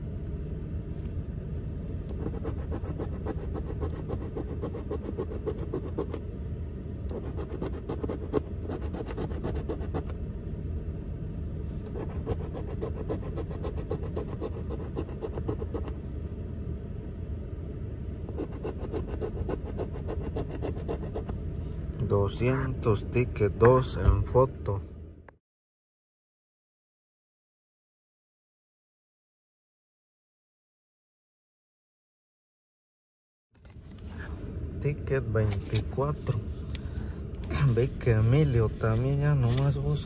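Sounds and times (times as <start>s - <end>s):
low rumble: 0.0s - 25.3s.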